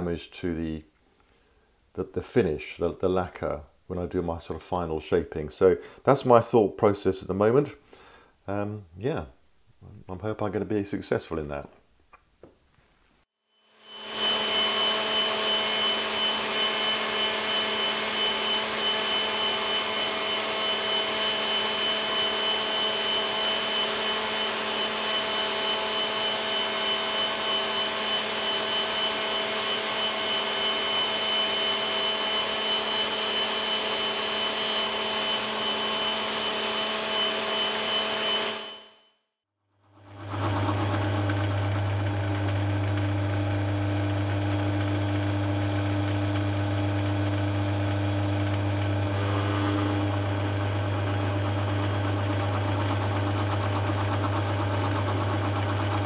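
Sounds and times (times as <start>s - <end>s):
router whining: 13.7s - 39.0s, 40.0s - 56.0s.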